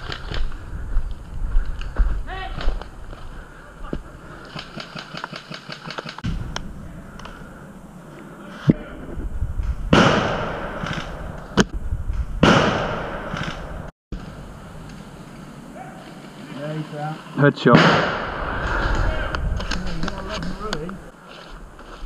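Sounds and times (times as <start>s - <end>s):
sharp clicks: 4.5s - 7.3s
leaf and clothing rustling: 14.2s - 17.6s, 18.6s - 22.0s.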